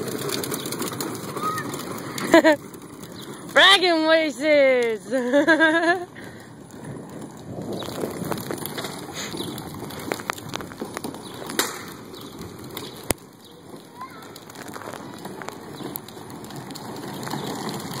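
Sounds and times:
footsteps on concrete: 0:04.8 - 0:18.0.

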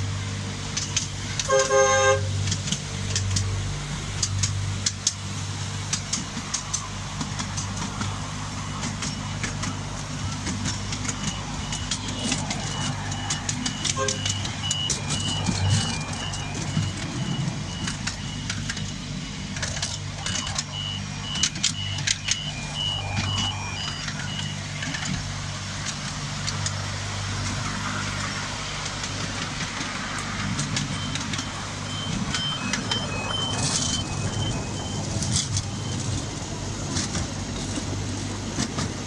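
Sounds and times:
miniature train engine drone: 0:00.0 - 0:39.0
wheels clicking on rails: 0:00.0 - 0:39.0
two-note beeping: 0:20.2 - 0:24.6, 0:30.9 - 0:36.0.

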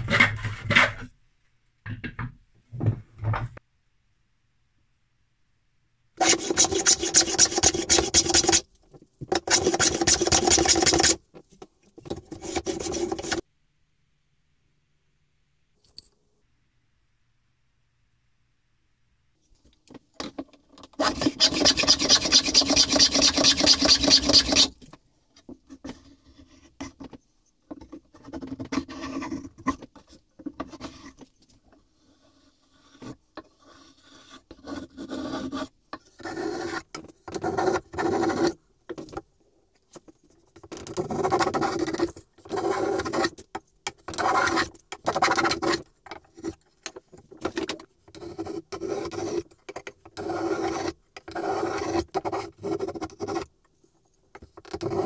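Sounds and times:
hand plane scraping wood: 0:06.2 - 0:08.6, 0:12.3 - 0:13.4, 0:21.0 - 0:24.7, 0:32.0 - 0:38.6, 0:44.1 - 0:46.6, 0:48.1 - 0:53.5, 0:54.7 - 0:55.0.

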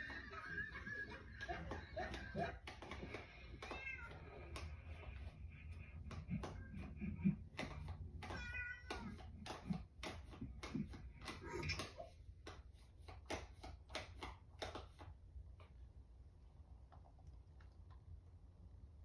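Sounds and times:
clicks and taps: 0:00.0 - 0:15.8
cat meowing: 0:03.6 - 0:04.4, 0:08.2 - 0:09.2.

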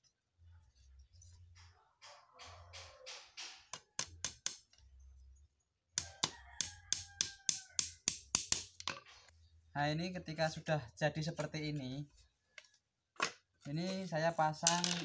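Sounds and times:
hammer tapping a nail: 0:06.0 - 0:08.7.

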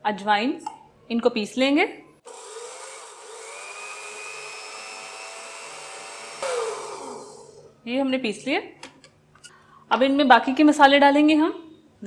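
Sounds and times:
blender motor grinding seeds: 0:02.3 - 0:07.7.

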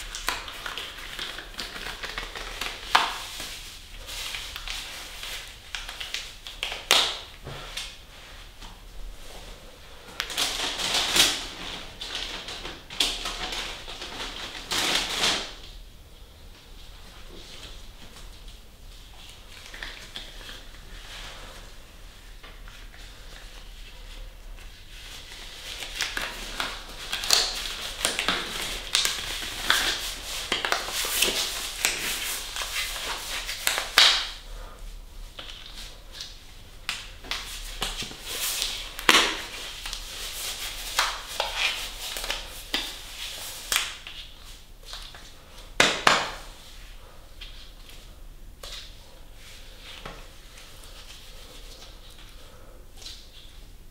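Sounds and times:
rubber gloves stretching and rubbing: 0:16.8 - 0:53.9.

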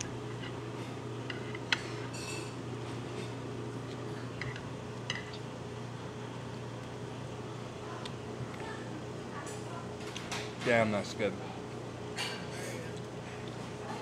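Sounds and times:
steady low hum: 0:00.0 - 0:14.0
tableware clinking against dishes: 0:01.3 - 0:02.6, 0:12.2 - 0:12.8.

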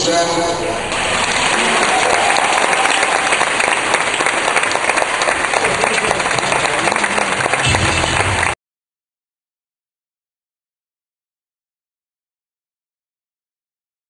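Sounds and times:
audience applauding: 0:00.9 - 0:08.6.

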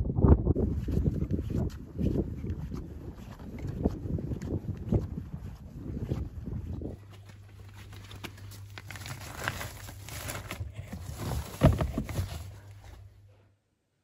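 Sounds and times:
low steady hum: 0:00.0 - 0:14.0
footsteps on tarmac: 0:00.7 - 0:10.4
bin bags rustling: 0:07.1 - 0:13.2.

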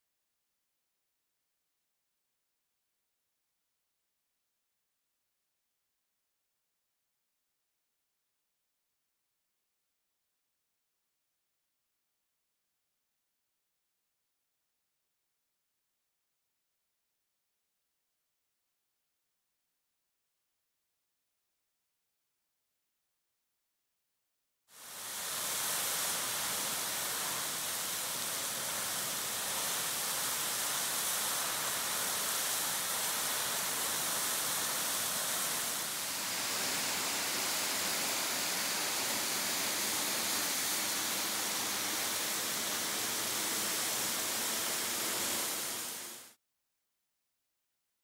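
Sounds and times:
waterfall splashing onto rocks: 0:24.9 - 0:46.3.

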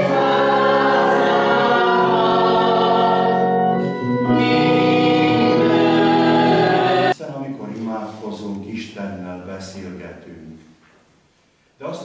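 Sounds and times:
church choir singing: 0:00.0 - 0:07.2
organ chords: 0:00.0 - 0:07.3.

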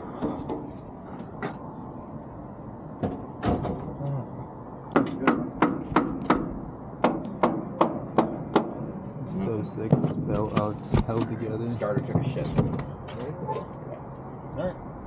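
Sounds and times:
low steady background noise: 0:00.0 - 0:15.0
sharp knocks and clacks: 0:04.9 - 0:08.8.

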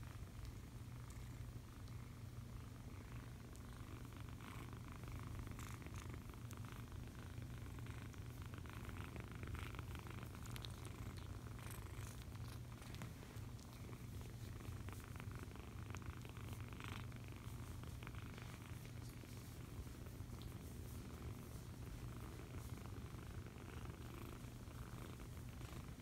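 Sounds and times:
kitten purring: 0:00.0 - 0:26.0
fur and blanket rustling: 0:12.0 - 0:15.1.

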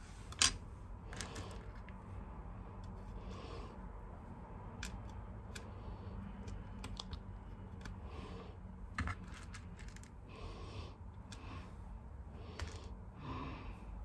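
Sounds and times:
plastic beads clicking on pegboard: 0:04.7 - 0:08.0, 0:08.9 - 0:10.2.

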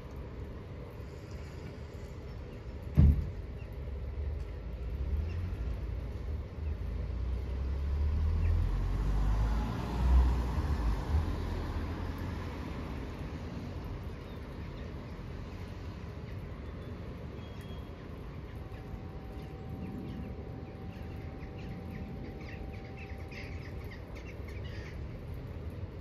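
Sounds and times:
low steady rumble: 0:00.0 - 0:26.0
faint steady tone: 0:12.0 - 0:26.0
small birds chirping: 0:13.6 - 0:26.0.

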